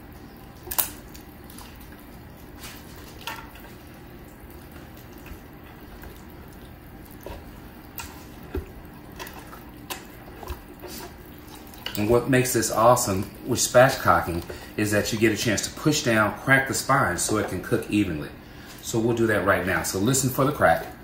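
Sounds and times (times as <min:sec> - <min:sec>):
wet slaps of raw turkey skin: 0:00.6 - 0:01.8.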